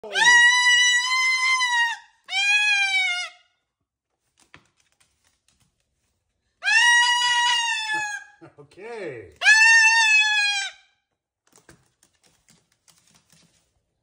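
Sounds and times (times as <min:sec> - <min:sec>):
cockatoo calling: 0:00.0 - 0:03.4, 0:06.6 - 0:08.4, 0:09.4 - 0:10.9.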